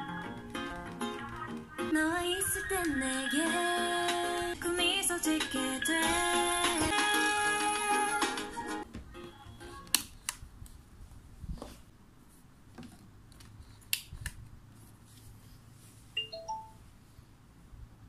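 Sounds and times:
music from cd player: 0.0 - 9.9.

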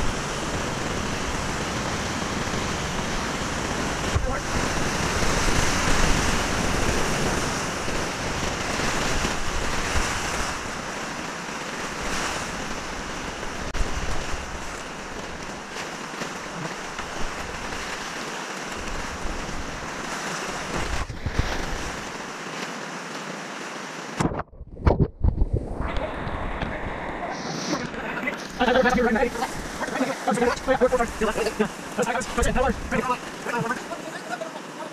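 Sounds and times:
whitewater rushing and splashing: 0.0 - 24.4, 25.7 - 34.9
wind buffeting microphone: 24.2 - 29.8, 30.5 - 33.4.

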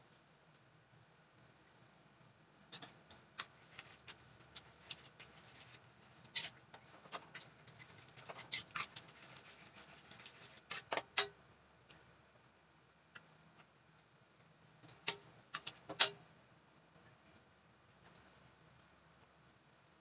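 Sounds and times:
sauce bubbling: 2.7 - 11.3
metal spatula scraping wok: 2.8 - 11.0.

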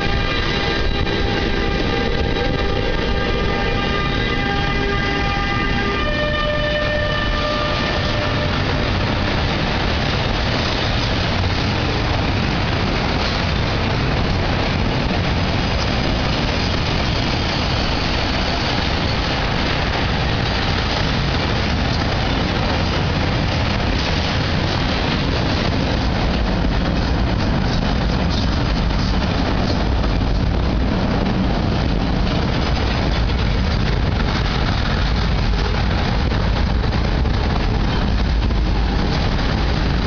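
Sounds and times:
locomotive horn: 0.0 - 9.6
train wheels rumbling on rails: 0.0 - 40.0.

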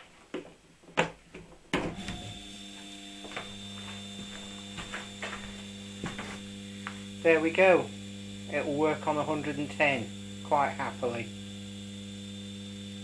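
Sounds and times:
electric motor humming: 1.8 - 13.0.

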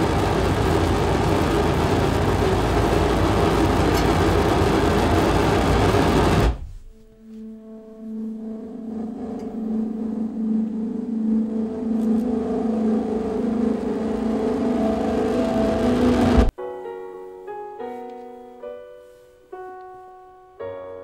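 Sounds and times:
dense electronic noise: 0.0 - 16.5
low humming drone: 0.0 - 16.5
sustained high tones: 6.9 - 16.5.

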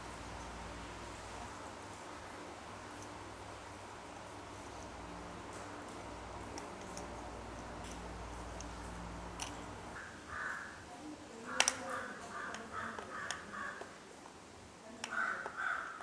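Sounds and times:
steady low hum: 0.0 - 11.0
plastic parts clicking and rubbing: 6.5 - 9.8, 11.5 - 11.9.

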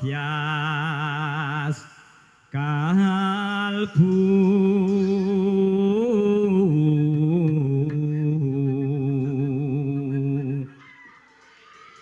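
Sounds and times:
person singing long notes: 2.6 - 10.8.

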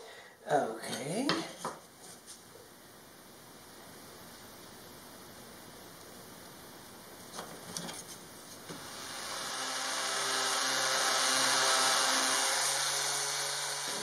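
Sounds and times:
orbit sander on wood: 8.7 - 14.0.

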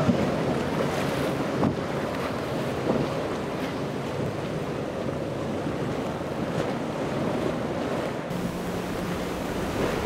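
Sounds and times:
powerboat engines running hard: 0.0 - 10.0
wind buffeting microphone: 0.0 - 10.0
breaking waves: 6.5 - 10.0.

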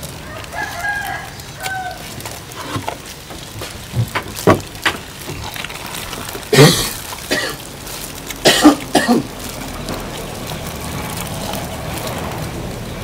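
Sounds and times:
person coughing: 6.5 - 7.6, 8.4 - 9.3.

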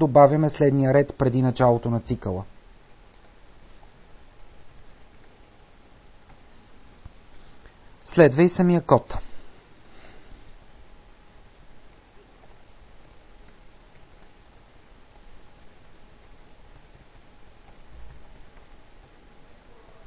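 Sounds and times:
low steady hiss: 0.0 - 20.0
keyboard keys clicking: 5.1 - 6.4, 11.9 - 14.4, 15.1 - 19.2.

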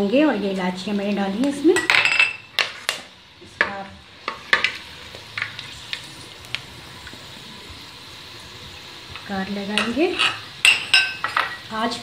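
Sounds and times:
spices sizzling in hot oil: 0.0 - 12.0
metal spoon clinking against pot: 9.8 - 11.6.

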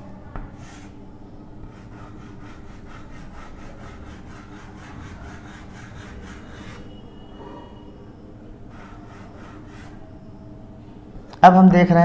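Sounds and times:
chalk scraping on chalkboard: 0.6 - 1.0, 1.6 - 7.0, 8.7 - 10.0.

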